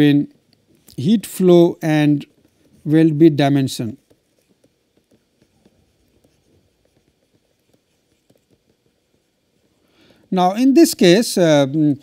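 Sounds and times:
stylus tapping on pen tablet: 4.0s - 10.3s.

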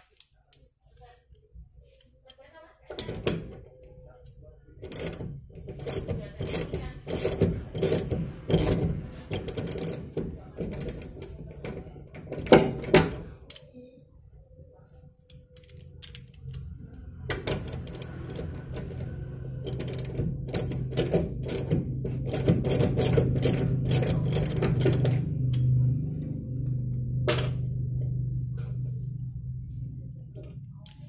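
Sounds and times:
steady low hum: 2.9s - 31.0s.

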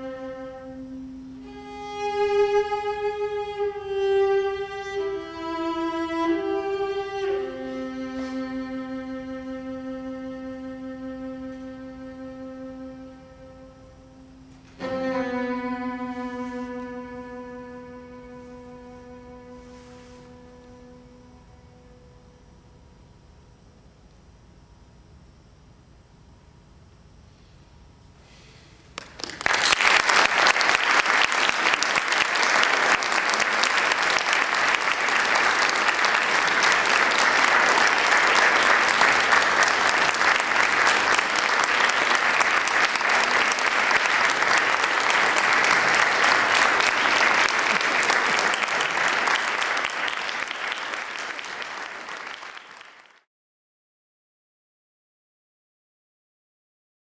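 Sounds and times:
audience applauding: 29.0s - 53.3s.

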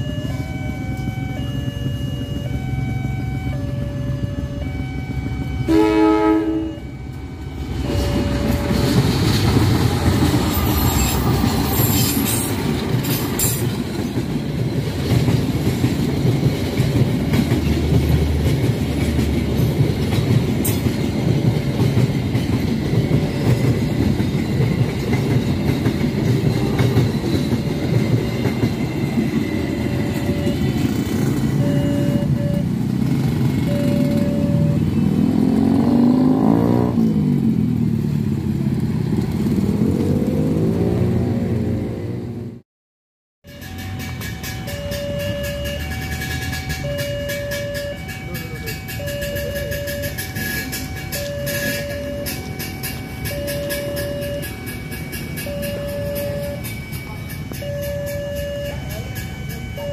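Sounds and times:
passenger train rumbling past: 0.0s - 42.6s, 43.5s - 59.9s
locomotive horn blast: 0.3s - 9.2s, 29.8s - 37.0s.

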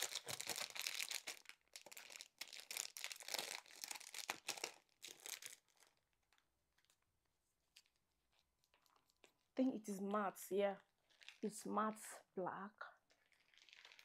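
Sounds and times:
packaging crinkling: 0.0s - 7.1s, 11.1s - 11.5s, 13.1s - 14.0s.

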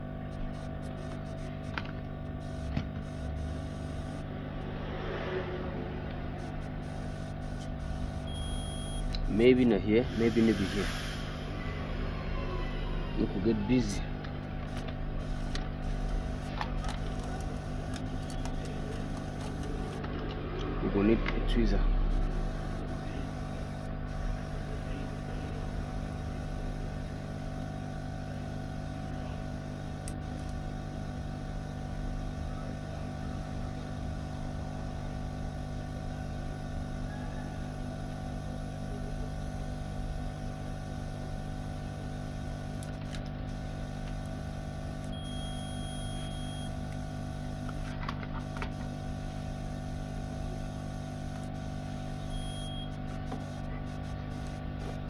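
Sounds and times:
steady mechanical hum: 0.0s - 55.0s
multimeter high beep: 6.4s - 11.7s, 45.1s - 46.8s, 52.1s - 53.0s.

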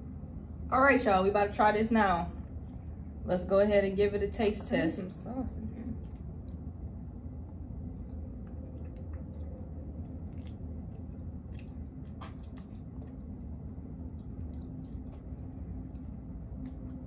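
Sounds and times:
low background hum: 0.0s - 17.0s
person chewing: 6.0s - 17.0s
wet mouth clicks: 7.6s - 17.0s.

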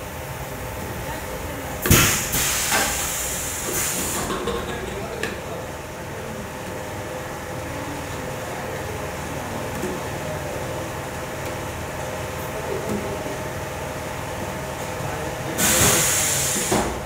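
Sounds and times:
compressed air hissing: 1.9s - 4.4s, 15.6s - 17.0s.

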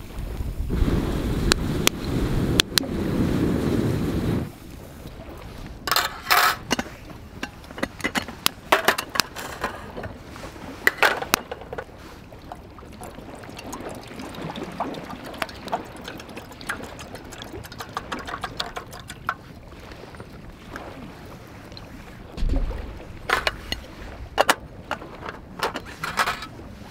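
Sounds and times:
water poured into kettle: 13.0s - 19.4s.

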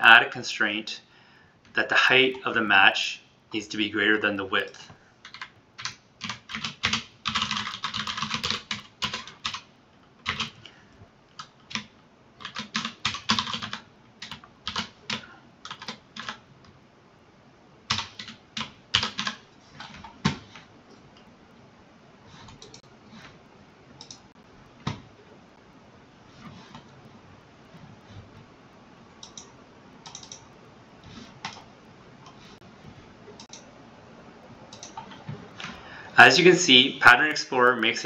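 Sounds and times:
typing on computer keyboard: 5.2s - 10.6s, 11.4s - 16.4s, 17.9s - 20.7s, 29.2s - 30.4s, 34.7s - 35.2s
faint clicks: 29.2s - 30.4s.

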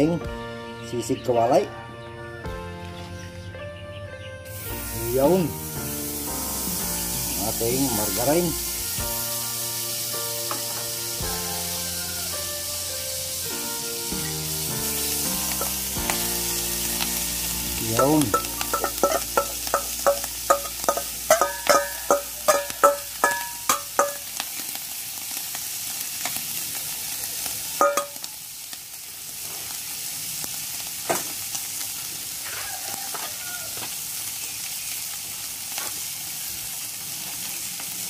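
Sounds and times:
food sizzling in a wok: 4.5s - 38.0s
metal bowl clanking on wok: 10.5s - 10.9s, 17.9s - 24.4s, 27.8s - 28.3s.

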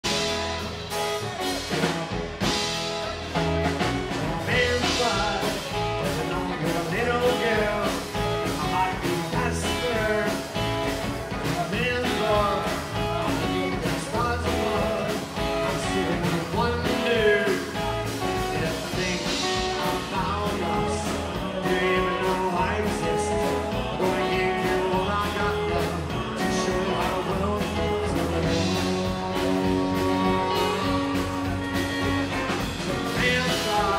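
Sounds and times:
drums: 0.0s - 33.9s
electric guitar: 0.0s - 33.9s
strummed acoustic guitar: 0.0s - 33.9s
man singing: 4.4s - 33.9s.

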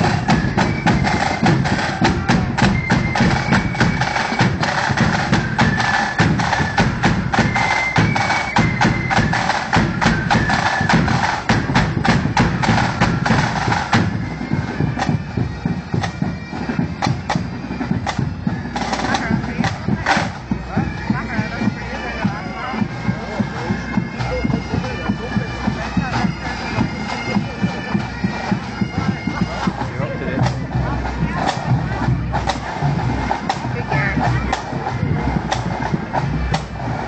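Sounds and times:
flutes playing a tune: 0.0s - 37.0s
rapid snare drums: 0.0s - 37.0s
bass drum: 29.4s - 36.8s.

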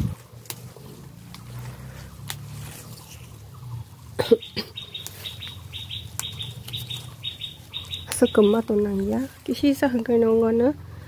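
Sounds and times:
bird chirping: 1.4s - 10.3s
sharp clicks: 4.9s - 7.1s.

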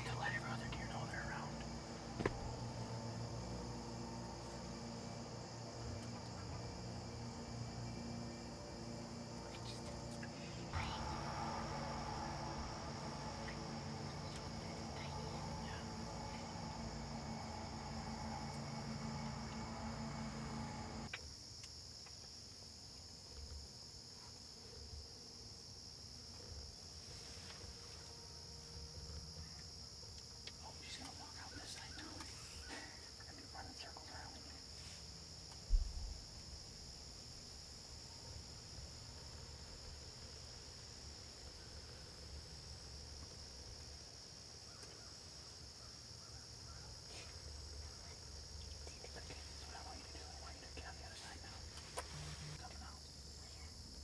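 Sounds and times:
low rumble: 0.0s - 21.1s
low steady hum: 0.0s - 21.2s, 27.0s - 54.0s
crickets chirping: 0.0s - 54.0s.

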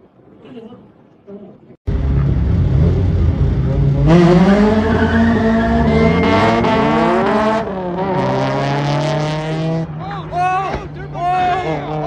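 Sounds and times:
sports car engine revving: 1.9s - 10.0s.

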